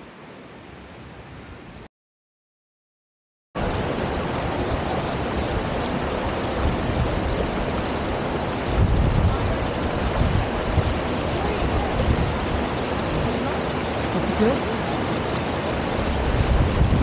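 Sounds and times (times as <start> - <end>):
fast-flowing water rushing: 3.6 - 17.0
wind rumble on microphone: 3.6 - 17.0.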